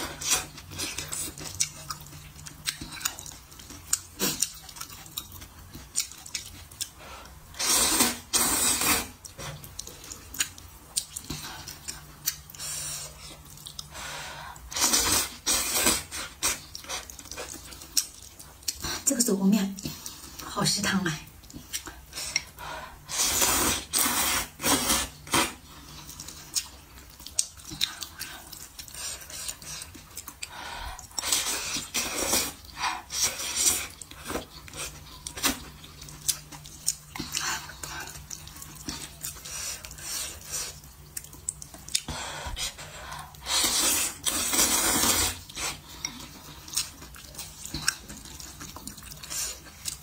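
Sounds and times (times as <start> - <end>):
person chewing: 0.0 - 19.0, 21.3 - 50.0
noodles slurped: 5.8 - 10.6, 27.2 - 50.0.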